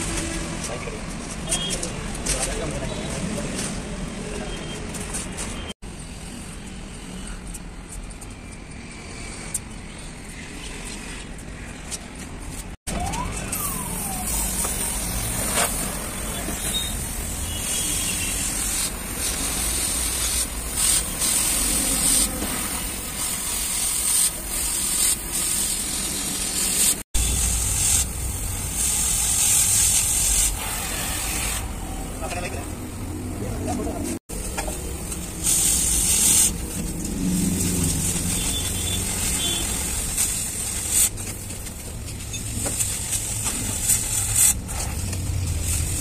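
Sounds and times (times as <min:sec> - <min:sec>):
gas cutting torch hissing: 0:13.5 - 0:32.3, 0:34.4 - 0:41.6, 0:42.5 - 0:46.0.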